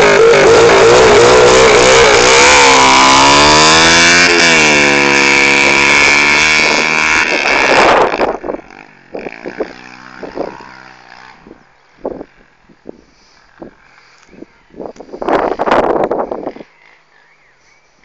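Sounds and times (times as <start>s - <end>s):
motorbike engine revving: 0.0s - 14.2s.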